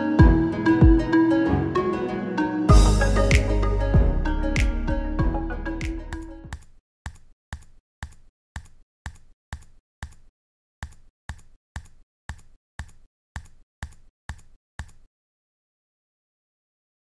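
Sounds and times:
keystroke clicks: 6.6s - 15.1s.

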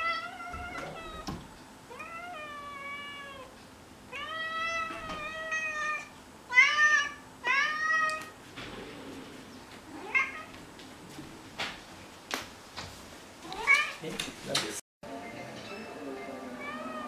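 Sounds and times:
cat meowing: 0.0s - 3.5s, 4.1s - 8.3s, 9.9s - 10.5s, 16.6s - 17.0s.

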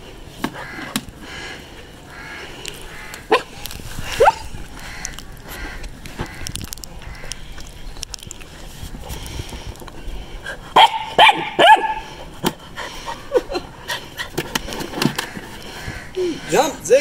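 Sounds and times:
puppy yapping barks: 10.8s - 12.0s.

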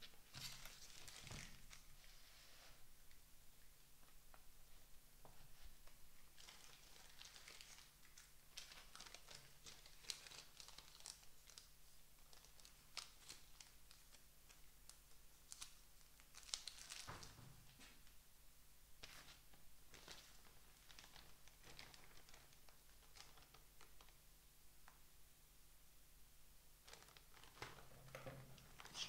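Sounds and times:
paper rustling and tearing: 0.3s - 2.2s.

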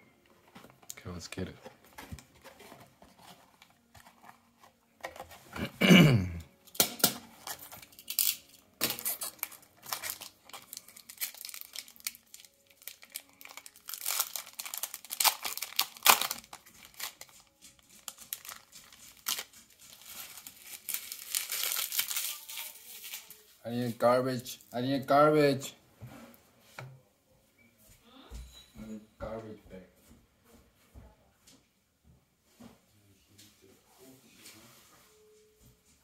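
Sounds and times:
foil wrapper crinkling and tearing: 7.4s - 23.6s.

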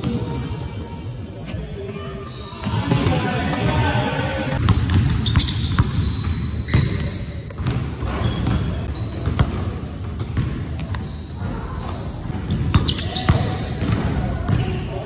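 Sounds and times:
basketball bouncing on wooden floor: 7.6s - 9.6s.

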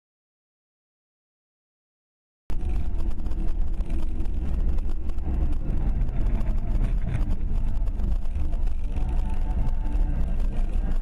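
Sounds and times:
car engine and tyres rumbling: 2.5s - 11.0s.

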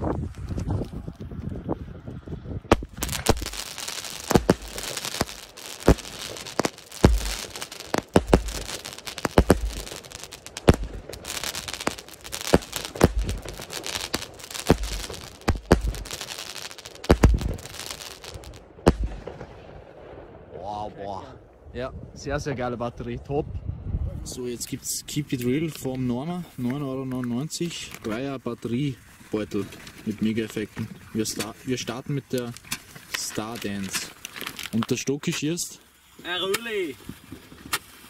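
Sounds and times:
crackling firework stars: 0.0s - 20.4s, 25.0s - 38.0s
firework launch thumps and bangs: 2.7s - 19.6s.

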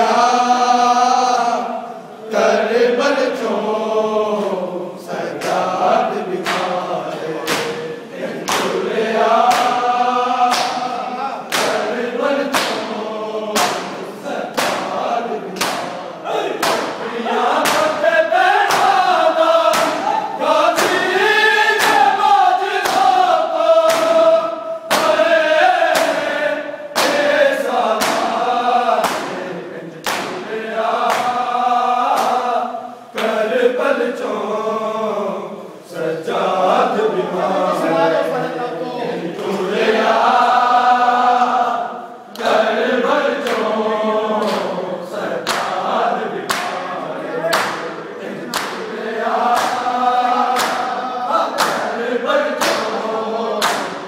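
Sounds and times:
men chanting in chorus: 0.0s - 54.0s
hands slapping chests: 6.4s - 6.8s, 7.4s - 7.8s, 8.4s - 8.8s, 9.4s - 10.9s, 11.5s - 16.0s, 16.6s - 22.2s, 22.8s - 24.3s, 24.9s - 26.3s, 26.9s - 31.4s, 32.0s - 32.5s, 44.4s - 44.7s, 45.4s - 45.8s, 46.5s - 46.8s, 47.5s - 47.9s, 48.5s - 49.9s, 50.5s - 50.9s, 51.6s - 52.0s, 52.6s - 53.0s, 53.6s - 54.0s.

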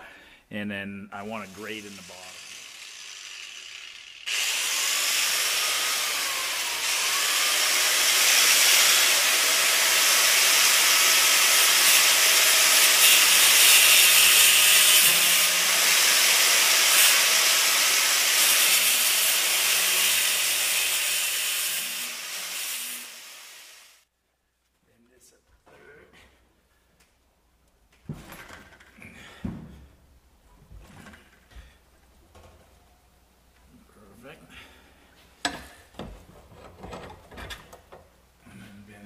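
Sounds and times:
power grinder cutting steel: 1.2s - 24.0s.

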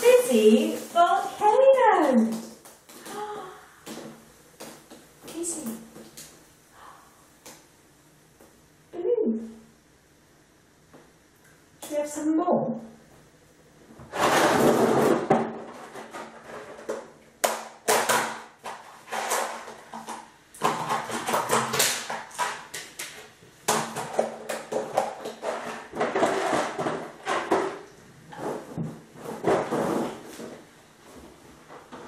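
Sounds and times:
plastic rustling and crinkling: 0.0s - 6.4s, 14.0s - 17.2s, 17.9s - 32.0s.

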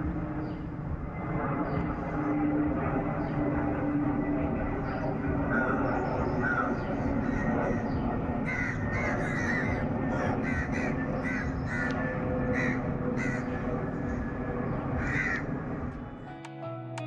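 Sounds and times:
jet airliner rumble overhead: 0.0s - 16.3s
crows cawing: 5.5s - 15.7s.

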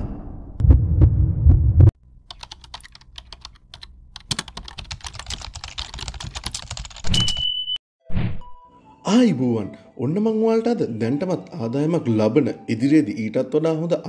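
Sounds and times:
deep thumping pulses: 0.0s - 2.0s
rapid irregular clicks and crackles: 2.3s - 7.0s.

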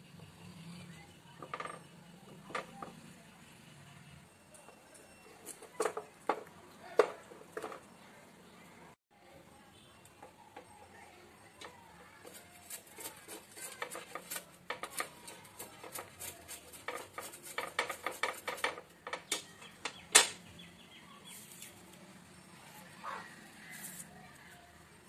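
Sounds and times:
scraping on metal grater: 12.2s - 19.1s.

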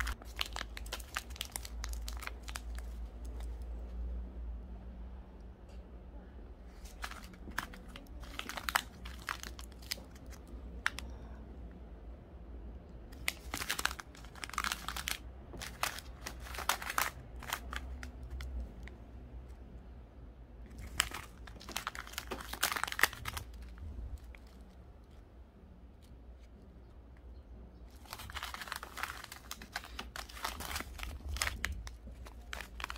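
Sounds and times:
plastic bags crinkling: 0.0s - 3.6s, 6.7s - 11.1s, 13.2s - 18.9s, 20.7s - 24.7s, 27.9s - 32.9s.

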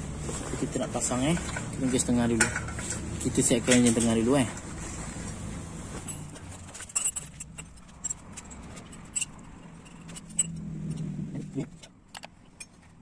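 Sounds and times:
metal parts clinking and knocking: 1.0s - 4.7s, 6.0s - 13.0s.

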